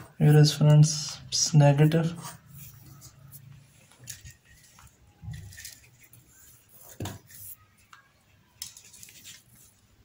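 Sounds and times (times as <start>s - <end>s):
handling wire on workbench: 2.1s - 8.0s.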